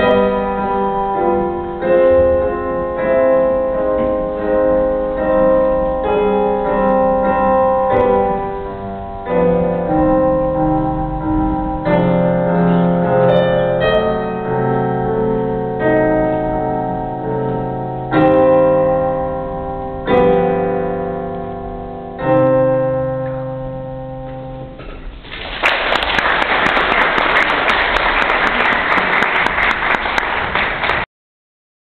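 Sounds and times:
piano chords ringing: 0.0 - 25.4
audience clapping: 25.2 - 31.1.

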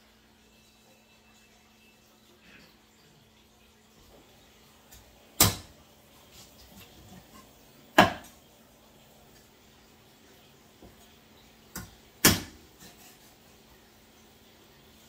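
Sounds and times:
cleaver chopping meat: 5.4 - 5.7, 11.8 - 12.6.

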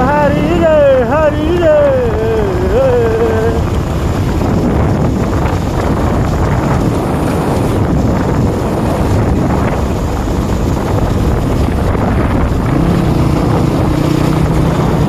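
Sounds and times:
motorcycle engine and tyres: 0.0 - 15.0
wind buffeting microphone: 0.0 - 15.0.

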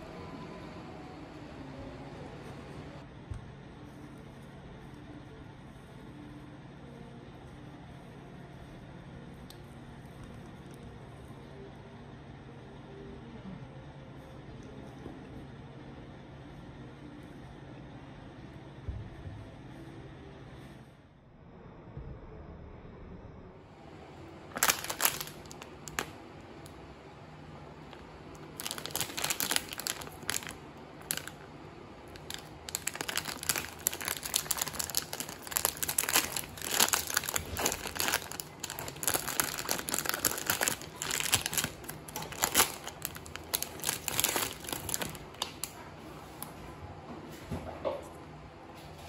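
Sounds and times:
plastic wrapper crinkling: 24.4 - 26.8, 27.7 - 46.5.

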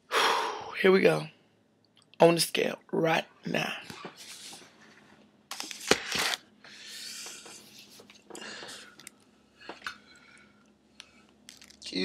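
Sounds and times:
rustling and handling noises: 3.9 - 6.4, 7.1 - 9.9, 10.9 - 12.0.

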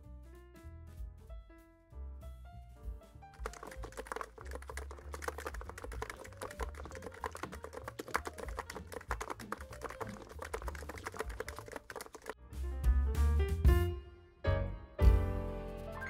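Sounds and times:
fast keyboard typing: 3.4 - 12.4.

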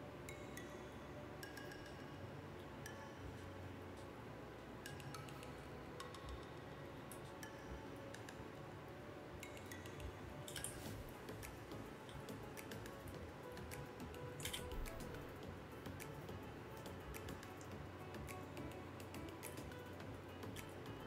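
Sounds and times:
low steady room hum: 0.0 - 21.0
computer mouse clicks: 9.4 - 13.0, 13.7 - 15.2
keyboard clicks: 13.6 - 15.2.

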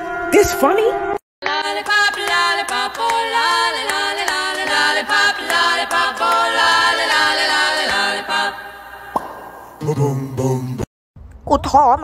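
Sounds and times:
voices singing in harmony: 1.4 - 10.9.

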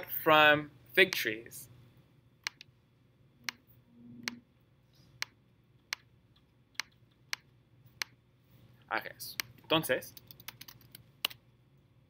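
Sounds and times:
computer mouse clicks: 2.4 - 2.7, 5.2 - 8.2, 9.4 - 11.4.

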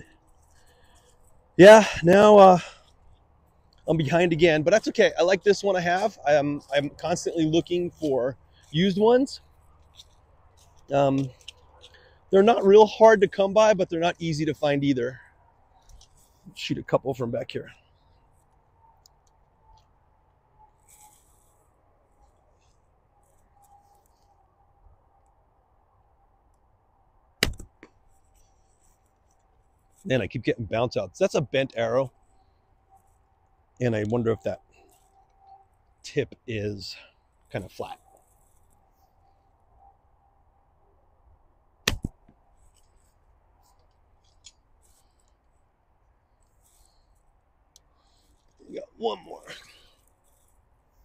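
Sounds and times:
faint rustle: 0.0 - 13.3, 17.3 - 24.9, 27.8 - 30.3, 32.0 - 36.1, 36.9 - 39.8, 42.4 - 51.0
arrow striking target: 27.4 - 27.8, 41.8 - 42.3.

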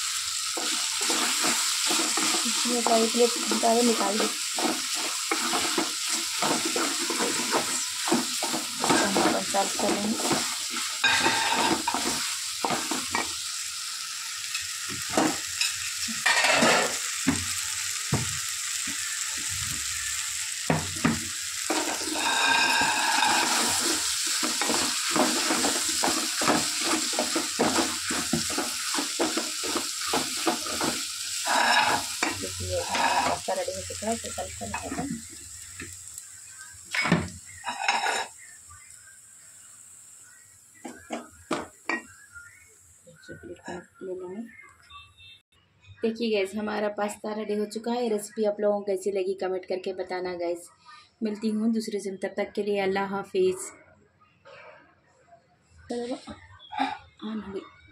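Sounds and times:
frying sizzle: 0.0 - 45.4
wooden spatula scraping metal pan: 0.6 - 13.3, 21.7 - 33.7, 37.6 - 38.3.

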